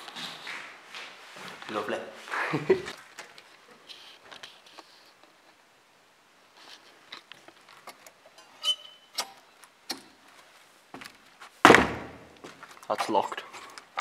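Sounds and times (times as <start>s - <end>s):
door handle squeak: 8.6s - 9.3s.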